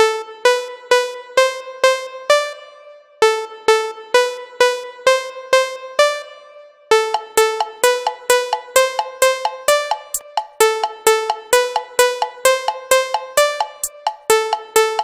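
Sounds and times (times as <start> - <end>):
electronic dance music synth riff: 3.3 - 6.3, 6.9 - 15.0.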